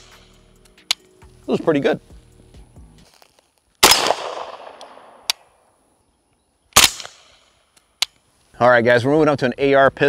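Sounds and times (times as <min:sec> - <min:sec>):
sharp click: 0:00.1 - 0:01.1
gunshot with echoing tail: 0:03.8 - 0:05.3
suppressed gunshot: 0:03.8 - 0:05.3, 0:06.8 - 0:07.4.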